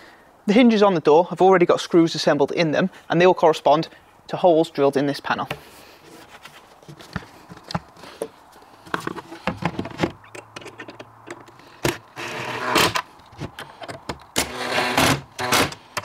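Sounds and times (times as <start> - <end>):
clicks and knocks of handling: 6.3 - 12.0, 12.9 - 14.4
cordless drill driving screws: 12.1 - 13.0, 14.4 - 15.8.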